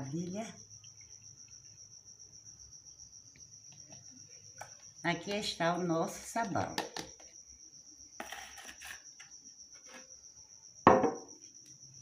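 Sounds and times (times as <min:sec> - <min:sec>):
jar scraping on countertop: 0:08.2 - 0:09.1.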